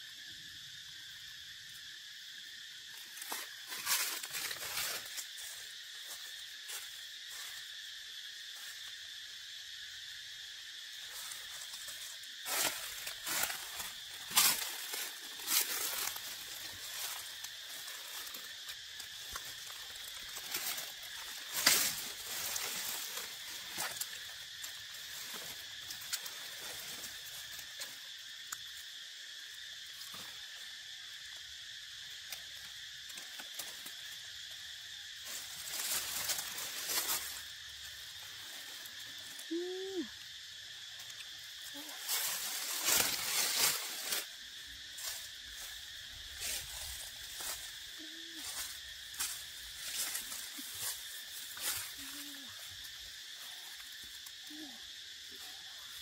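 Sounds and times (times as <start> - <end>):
insect chorus drone: 0.0 - 56.0
dry leaves rustling: 2.8 - 7.6, 11.0 - 27.9, 35.2 - 40.1, 41.1 - 53.9.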